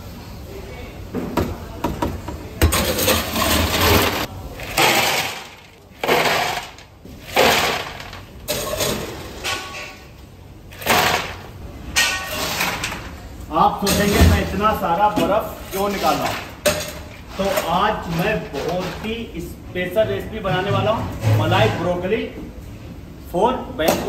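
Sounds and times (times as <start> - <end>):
ice cubes clattering into metal bowl: 2.6 - 9.9, 10.7 - 13.1.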